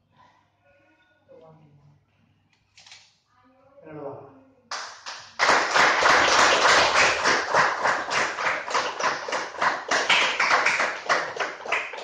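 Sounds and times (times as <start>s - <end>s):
people applauding: 4.7s - 12.0s.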